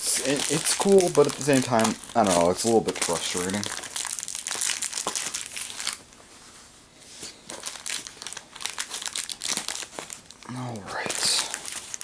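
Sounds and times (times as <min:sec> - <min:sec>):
plastic packaging crinkling: 0:00.0 - 0:06.2, 0:07.2 - 0:12.0.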